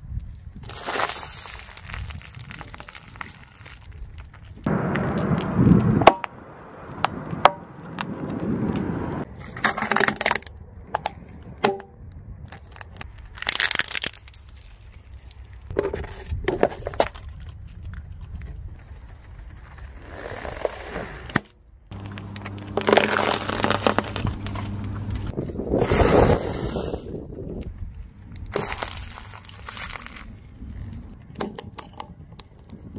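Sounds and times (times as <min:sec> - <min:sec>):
tyre crushing objects on asphalt: 0:00.6 - 0:06.3, 0:19.4 - 0:25.0, 0:28.5 - 0:31.8.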